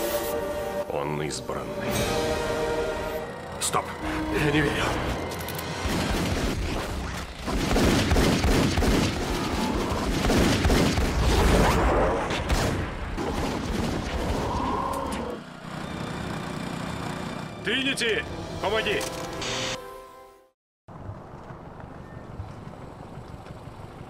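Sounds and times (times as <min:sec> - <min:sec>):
rapid gunfire: 0:05.7 - 0:11.8, 0:12.4 - 0:14.5.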